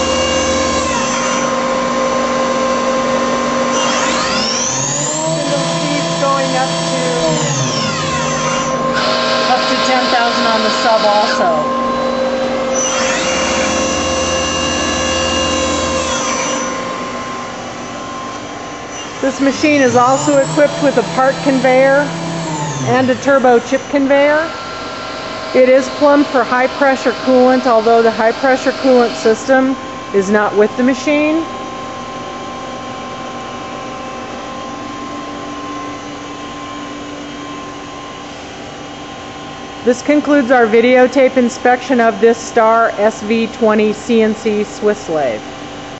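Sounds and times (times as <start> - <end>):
lathe spindle whining: 0.0 - 30.2
machine steady hum: 0.0 - 45.9.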